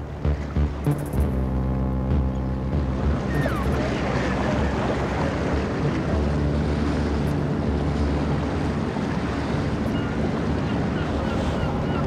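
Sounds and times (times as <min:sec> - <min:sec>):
boat engine running: 0:00.0 - 0:12.0
rough sea rushing: 0:02.6 - 0:12.0.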